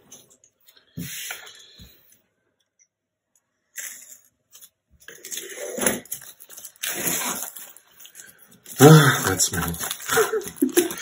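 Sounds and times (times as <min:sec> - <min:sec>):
plastic wrap crackling: 0:04.4 - 0:11.0.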